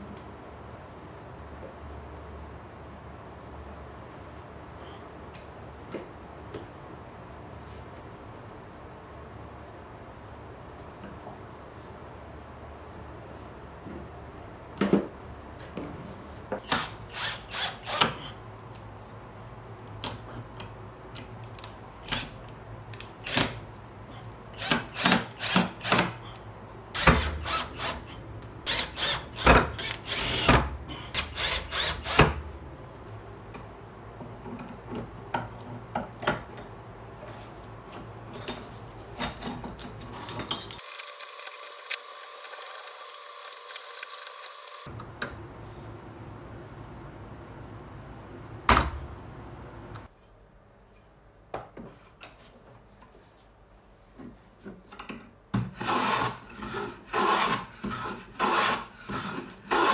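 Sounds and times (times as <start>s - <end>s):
cordless drill driving screws: 16.6s - 18.3s, 28.7s - 30.6s, 31.2s - 32.3s, 40.8s - 44.9s.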